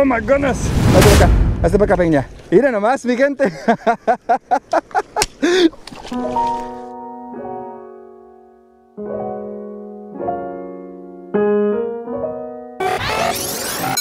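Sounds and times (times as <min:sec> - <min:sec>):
rushing noise effect: 0:00.0 - 0:02.4
slow piano chords: 0:06.1 - 0:12.8.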